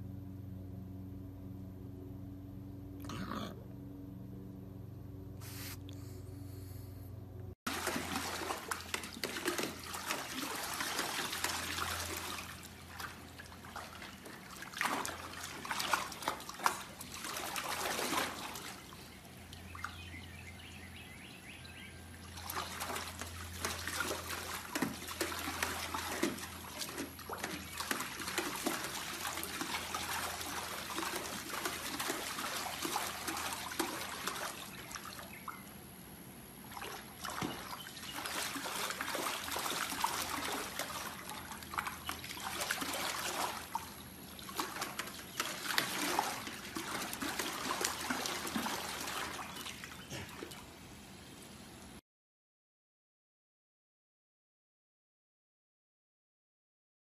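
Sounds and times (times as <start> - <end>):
low hum: 0.0 - 7.6
puppy splashing in water: 7.7 - 35.6, 36.6 - 50.8.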